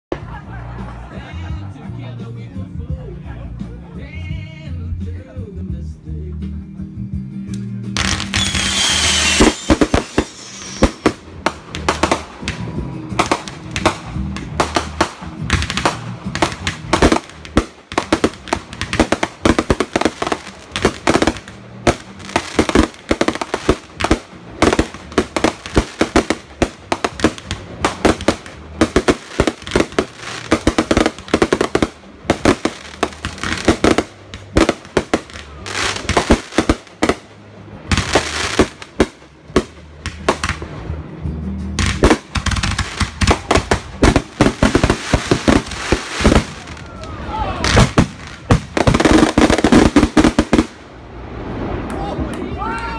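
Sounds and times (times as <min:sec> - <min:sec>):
fireworks barrage: 0:07.9 - 0:52.4.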